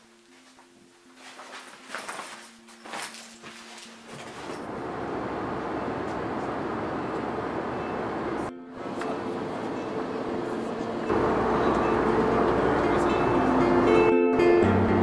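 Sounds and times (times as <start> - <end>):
suitcase being packed rustling: 0.3 - 4.7
airliner cabin rushing noise: 4.1 - 13.0.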